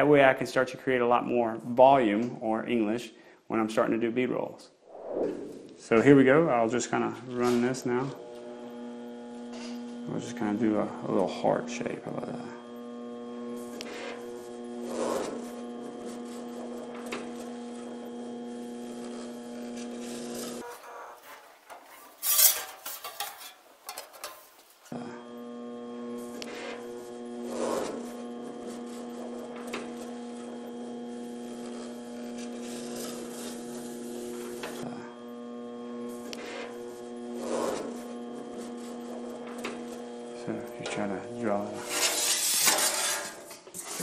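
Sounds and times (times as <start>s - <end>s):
electric motor humming: 7.4s - 21.3s, 24.9s - 42.5s
metal rubbing and scraping: 20.0s - 24.9s, 41.8s - 44.0s.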